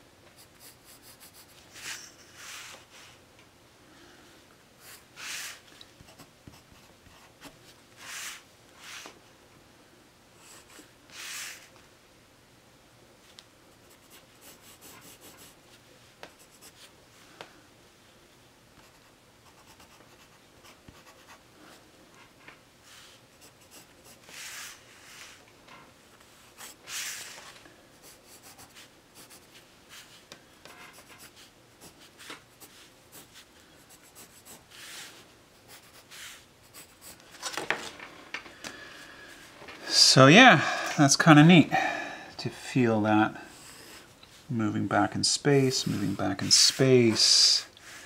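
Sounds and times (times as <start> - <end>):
pencil scratching on paper: 0.4 - 2.7, 13.8 - 15.6, 18.8 - 21.4, 23.3 - 25.4, 28.0 - 30.1, 30.7 - 37.2.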